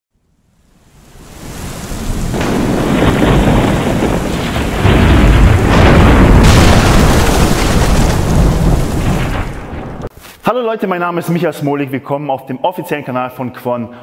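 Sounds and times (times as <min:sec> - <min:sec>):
rain-like hiss: 0:00.2 - 0:09.2
thunder-like rumble: 0:01.2 - 0:10.1.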